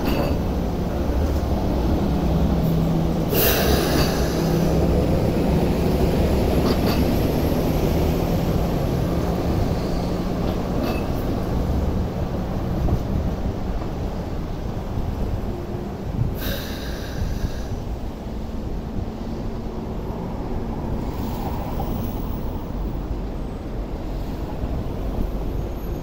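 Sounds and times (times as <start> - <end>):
wheels clacking on track joints: 0.0 - 15.5
train rumbling past: 0.0 - 26.0.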